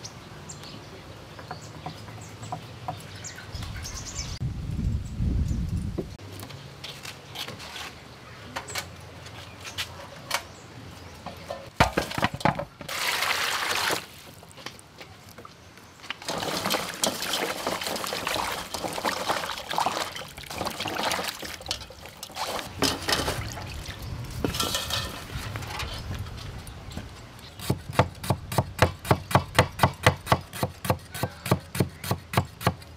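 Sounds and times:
water splashing in metal basin: 12.9 - 14.2, 16.2 - 25.2
water pouring: 12.9 - 14.3, 16.2 - 25.4.

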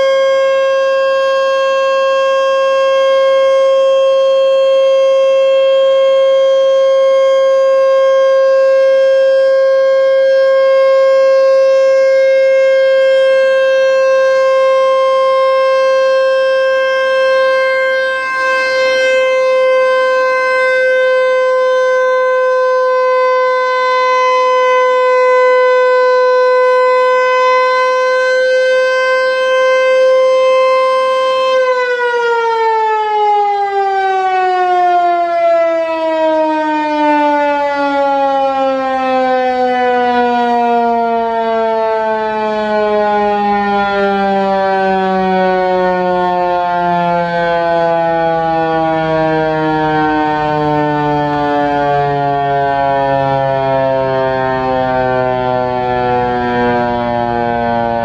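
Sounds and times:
warning siren steady tone: 0.0 - 58.0
siren rotor winding down: 47.6 - 58.0.

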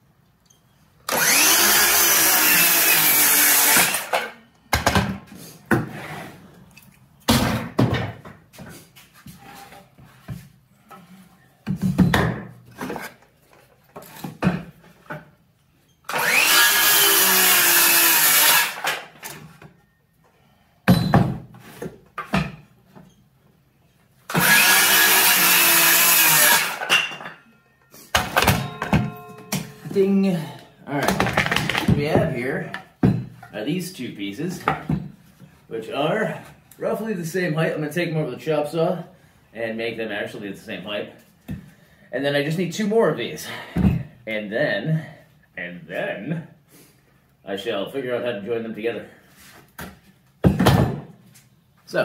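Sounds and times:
circular saw cutting wood: 1.1 - 4.3, 16.1 - 19.0, 24.3 - 26.9.

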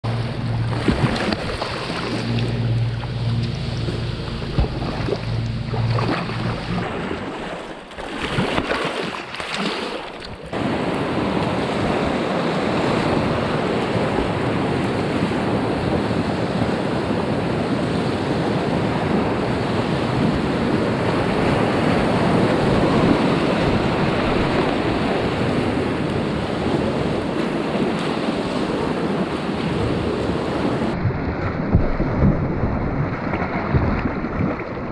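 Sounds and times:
low hum: 0.0 - 8.2
water splashing close: 0.0 - 14.3, 27.4 - 34.9
rushing river whitewater: 20.5 - 31.0.

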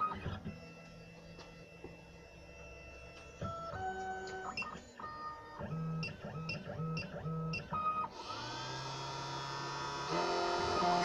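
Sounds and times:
positioning motors whining: 0.0 - 11.0
spindle motor spinning up: 8.1 - 11.0.

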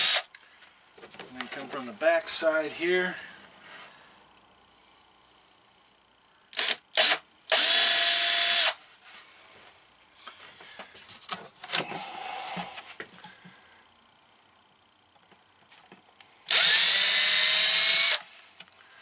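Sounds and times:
cordless drill whining: 0.0 - 0.3, 6.5 - 8.8, 16.5 - 18.4.

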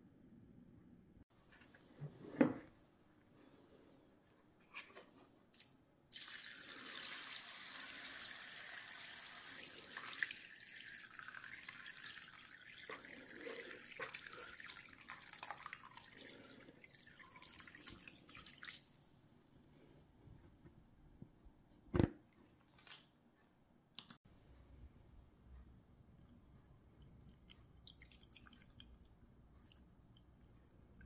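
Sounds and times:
water dripping: 5.6 - 19.2, 26.3 - 31.0
water pouring into a tray: 6.1 - 19.0.

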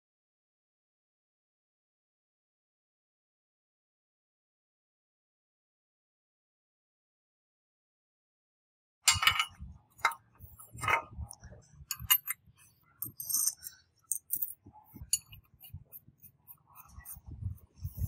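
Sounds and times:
light metallic clinks: 9.1 - 10.2, 11.9 - 12.4, 13.0 - 15.4.

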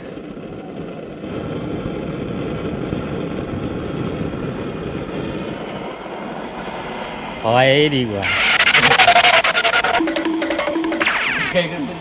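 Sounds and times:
gas burner roaring: 0.0 - 10.1.

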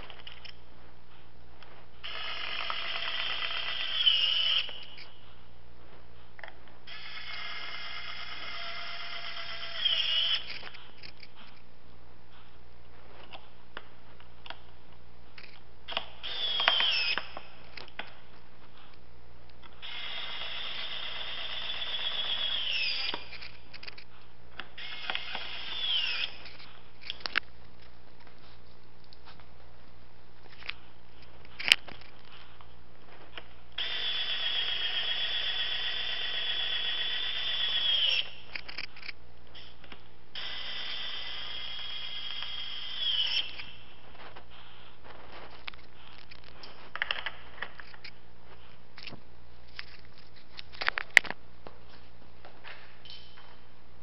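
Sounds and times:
electric screwdriver whine: 2.0 - 5.1, 6.9 - 11.2, 15.9 - 17.4, 19.8 - 23.6, 24.8 - 26.7, 33.8 - 38.8, 40.4 - 43.8.

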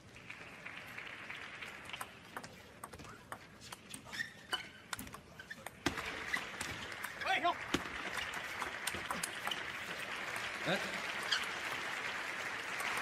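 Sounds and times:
crowd noise: 5.3 - 13.0.

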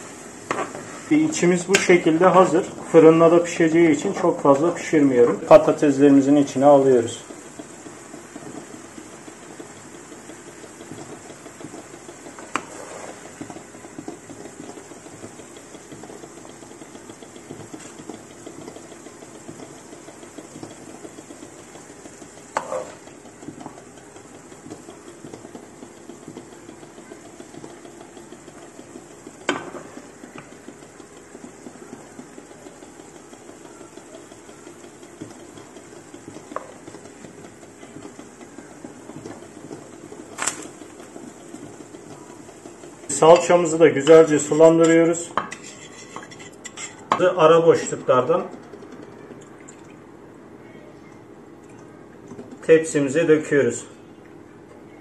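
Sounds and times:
food sizzling and crackling: 0.0 - 50.2
wooden spoon scraping metal pan: 12.4 - 13.3, 22.5 - 23.0, 45.4 - 47.1.

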